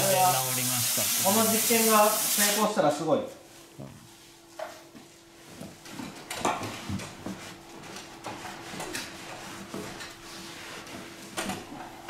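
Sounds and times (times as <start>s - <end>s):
towel brushing on drum head: 7.3s - 11.2s.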